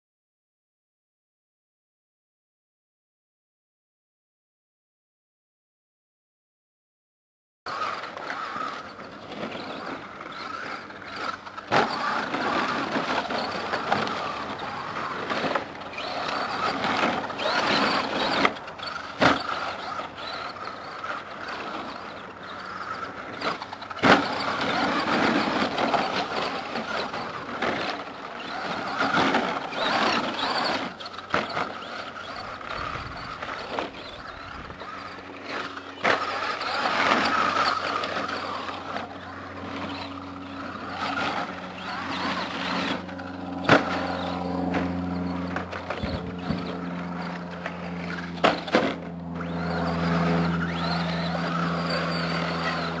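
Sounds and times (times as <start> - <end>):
electric motor whining: 7.7 - 53.0.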